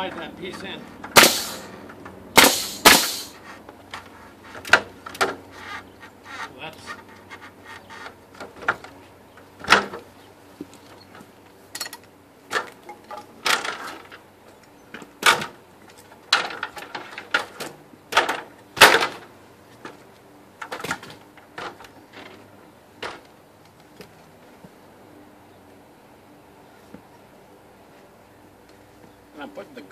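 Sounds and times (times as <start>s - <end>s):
wooden boards knocking and clattering: 6.8s - 9.0s, 9.6s - 10.1s, 12.5s - 14.2s, 14.9s - 20.0s, 20.6s - 23.3s.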